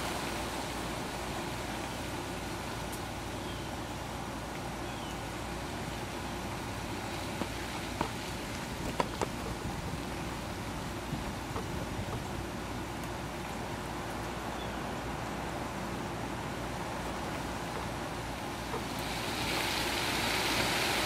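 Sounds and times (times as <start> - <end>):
hiss: 18.9 - 21.0.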